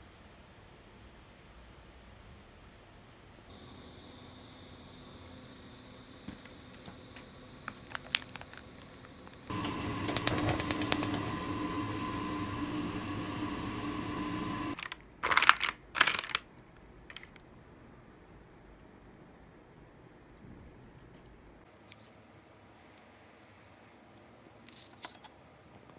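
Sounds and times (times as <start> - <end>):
steady hum: 3.5 - 14.8
packaging clicks and taps: 6.3 - 11.1, 14.8 - 16.4
plastic wrapping rustling: 7.6 - 9.5, 14.8 - 16.5.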